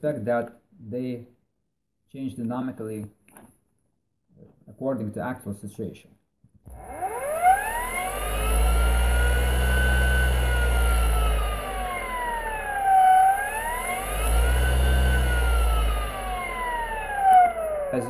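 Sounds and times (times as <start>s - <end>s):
electric motor whine: 6.7s - 18.0s
low hum: 6.7s - 18.0s.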